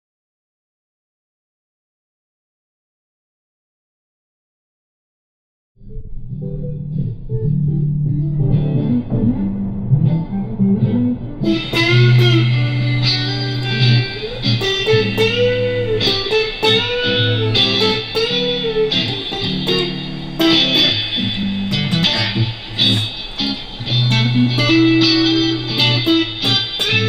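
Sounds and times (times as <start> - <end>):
electric guitar melody with bends: 5.8 - 27.0.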